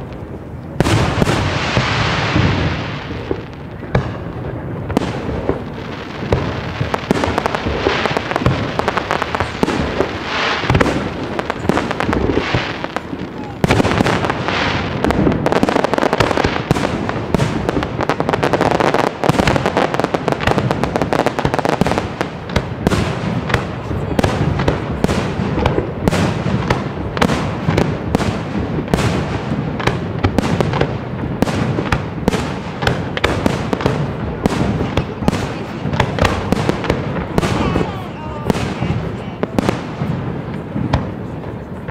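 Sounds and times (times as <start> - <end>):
dense crackle of rapid pops: 0.0 - 41.9.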